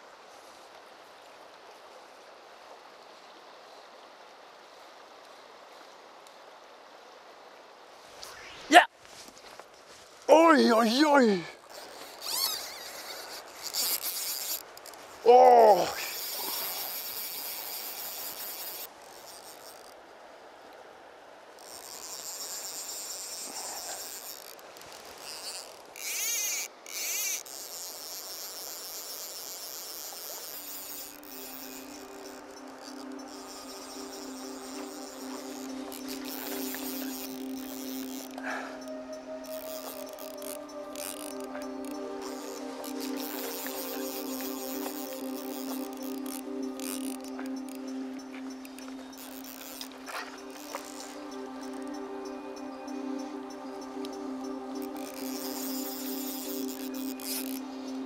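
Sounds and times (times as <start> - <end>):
insects chirring: 8.0 - 20.1, 21.5 - 58.0.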